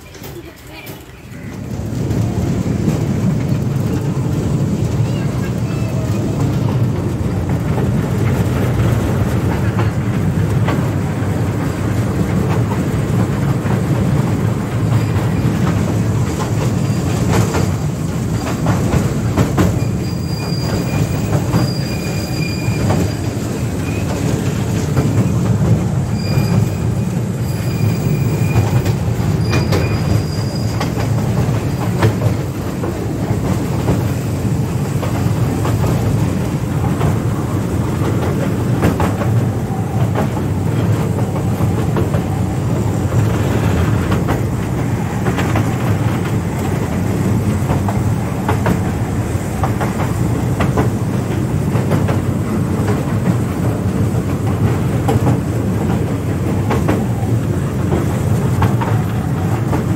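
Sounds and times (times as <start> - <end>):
wheels clicking over rail joints: 0.0 - 59.9
high wheel squeal: 19.7 - 24.3, 26.0 - 32.0.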